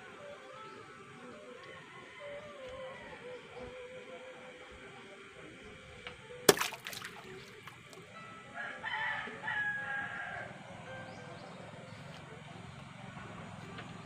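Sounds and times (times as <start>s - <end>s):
rooster crowing: 1.6s - 3.7s, 8.5s - 10.6s.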